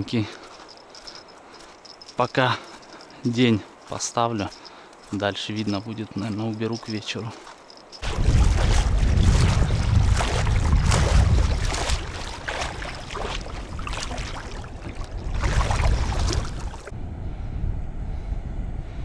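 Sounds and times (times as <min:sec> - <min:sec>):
splashing steps wading in water: 0:03.8 - 0:16.9
wind buffeting microphone: 0:08.0 - 0:19.0.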